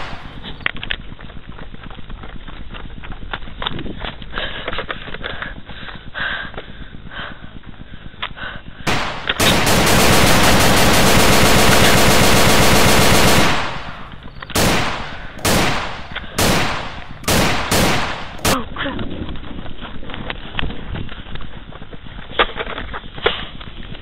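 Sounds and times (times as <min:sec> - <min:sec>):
machine-gun burst: 0:00.0 - 0:00.6, 0:08.9 - 0:18.6
single gunshots: 0:00.0 - 0:00.6, 0:08.9 - 0:18.6.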